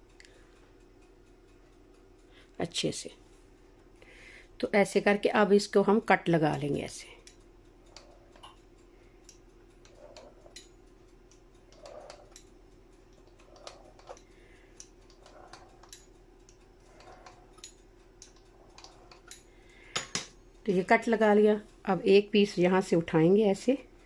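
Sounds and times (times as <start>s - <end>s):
steady low hum: 0.0s - 24.0s
pizza cutter rolling through dough: 7.9s - 8.5s, 9.8s - 10.6s, 11.6s - 12.4s, 13.0s - 19.4s.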